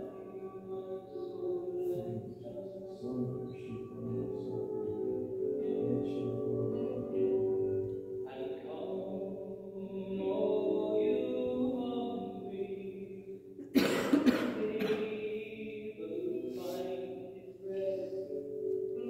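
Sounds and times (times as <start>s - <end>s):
person chant-like singing: 0.0s - 13.1s
loud cough: 13.6s - 15.2s.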